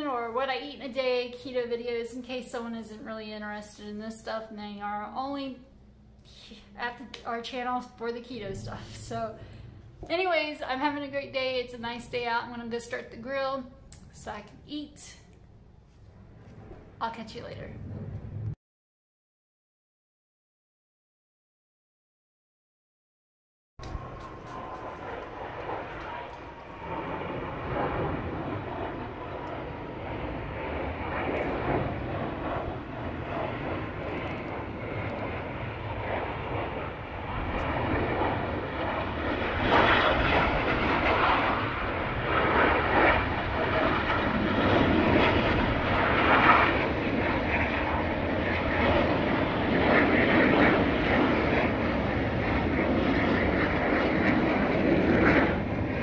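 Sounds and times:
jets flying overhead: 0.0s - 18.6s, 23.8s - 56.0s.

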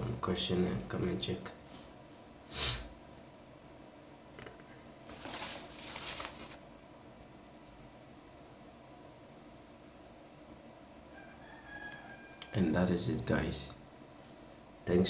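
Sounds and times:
crickets chirping: 0.0s - 15.0s
short hiss bursts: 2.5s - 2.9s.

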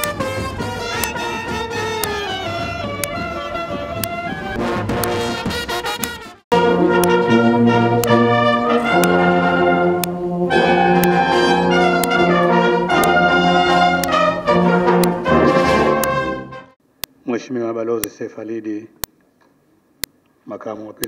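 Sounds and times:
sharp beat taps: 0.0s - 3.3s, 12.0s - 12.3s
brass band playing slow chords: 0.0s - 16.7s.

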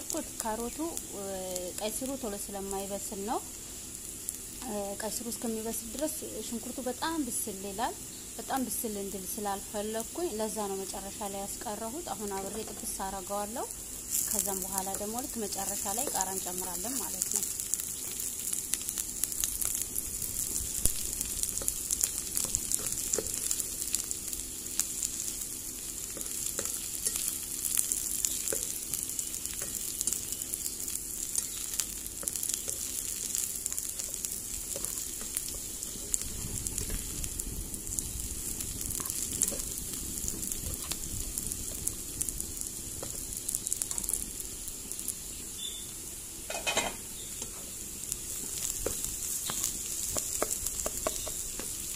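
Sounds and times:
vegetables sizzling in oil: 0.0s - 51.9s.

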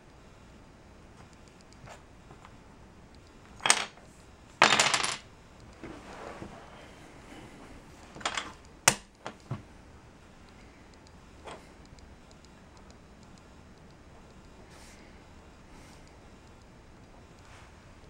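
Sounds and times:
wooden pieces rattling clatter: 3.5s - 4.0s, 4.6s - 5.2s
wooden puzzle pieces clacking: 3.5s - 4.0s, 4.6s - 5.2s.

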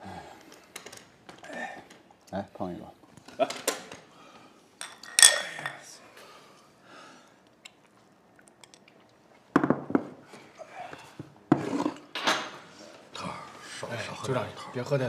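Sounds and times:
ceramic bowls clinking: 4.8s - 5.9s, 8.5s - 8.8s
bowls knocking on wooden table: 9.5s - 10.2s.

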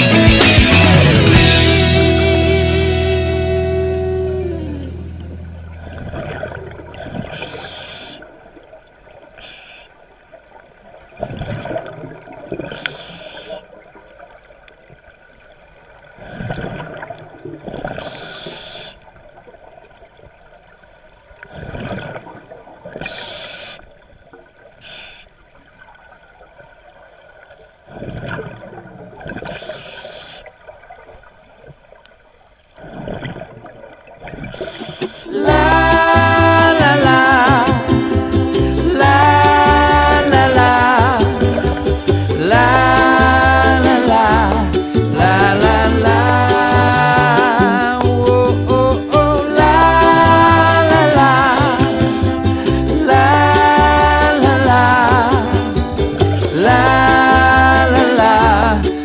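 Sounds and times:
regulator hiss on inhalation: 7.3s - 8.3s, 9.4s - 10.0s, 12.7s - 13.6s, 18.0s - 19.1s, 23.0s - 23.9s, 24.8s - 25.4s, 29.5s - 30.5s, 34.6s - 35.4s
bubbles bursting on exhalation: 11.2s - 12.8s, 32.8s - 59.0s.

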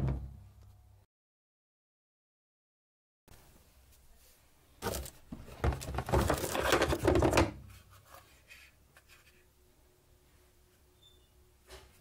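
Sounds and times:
hard plastic parts clacking: 4.8s - 7.6s.

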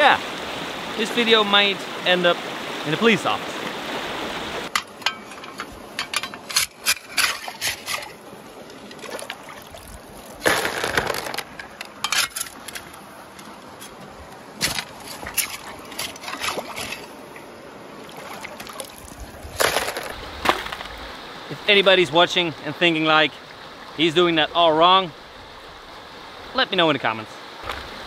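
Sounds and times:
water splashing: 0.0s - 25.0s
stream rushing: 0.0s - 28.0s
shovel scraping gravel: 4.8s - 8.2s, 10.2s - 12.9s, 14.6s - 17.2s, 19.5s - 20.9s.

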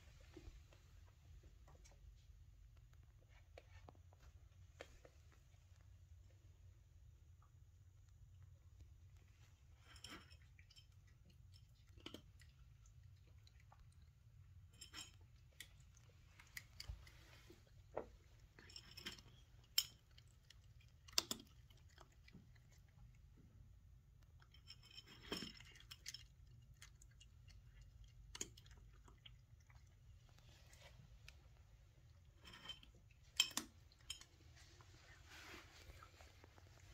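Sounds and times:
cat chewing crunches: 7.7s - 36.9s.

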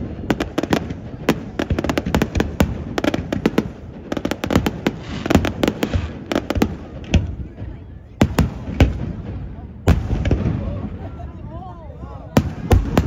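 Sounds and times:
fireworks bangs and pops: 0.0s - 11.0s, 12.3s - 13.0s
fireworks hiss: 2.1s - 7.1s.

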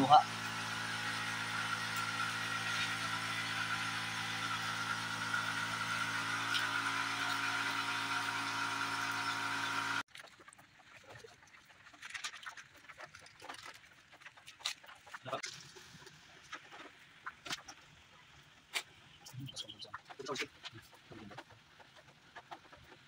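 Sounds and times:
machine droning: 0.0s - 10.1s.

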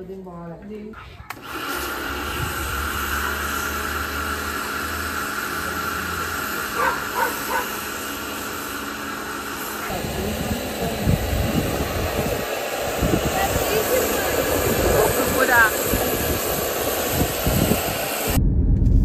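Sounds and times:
dog barking: 6.7s - 7.8s.

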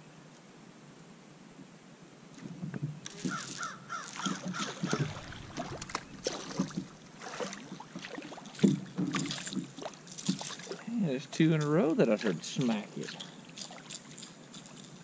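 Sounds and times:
bird cawing: 3.1s - 6.8s
fish splashing at the surface: 3.1s - 10.9s.

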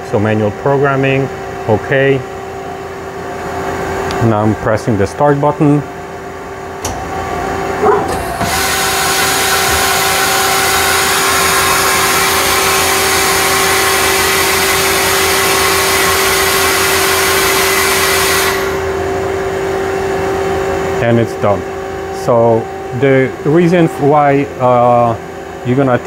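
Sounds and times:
motor hum: 5.9s - 25.8s
machine clunk: 7.8s - 8.6s
loud hiss of machine travel: 17.3s - 18.9s.

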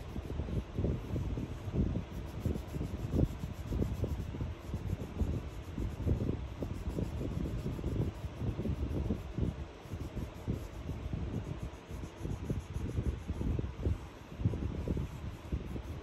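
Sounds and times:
scribbling on paper: 0.0s - 16.0s.

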